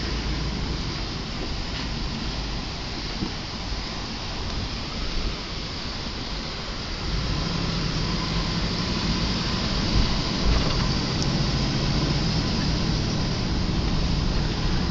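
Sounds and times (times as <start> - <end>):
vehicle engine and tyre noise: 0.0 - 14.9.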